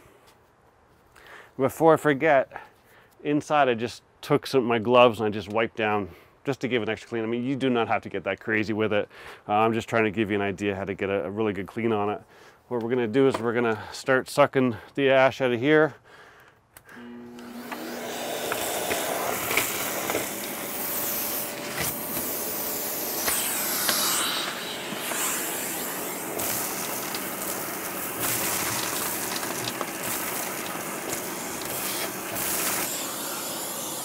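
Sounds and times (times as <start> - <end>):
shop vacuum running: 16.9 - 34.0.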